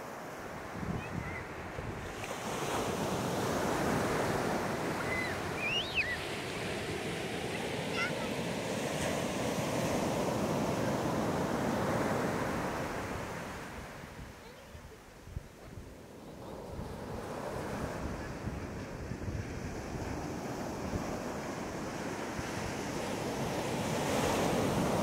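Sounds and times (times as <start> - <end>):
ocean waves breaking on beach: 0.0 - 25.0.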